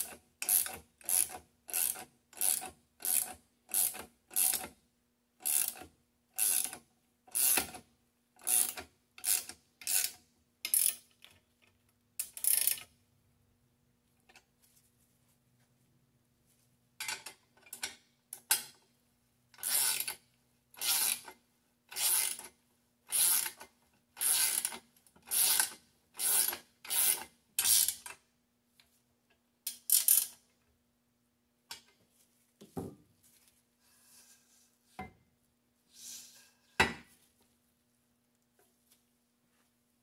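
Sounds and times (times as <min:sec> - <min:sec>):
socket ratchet clicking: 0:12.2 - 0:12.9, 0:29.7 - 0:30.4.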